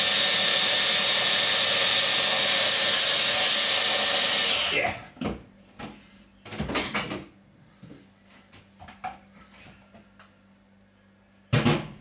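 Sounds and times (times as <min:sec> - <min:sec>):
faint steady hum: 0:04.8 - 0:12.0.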